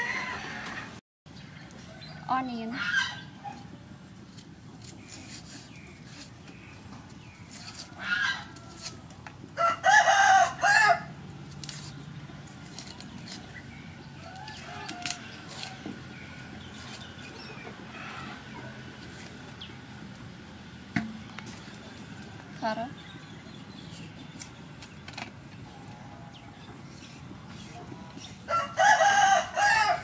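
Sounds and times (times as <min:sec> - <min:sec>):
rooster crowing: 0:00.0 - 0:01.0, 0:09.6 - 0:11.1, 0:28.5 - 0:30.0
outdoor background noise: 0:00.0 - 0:30.0.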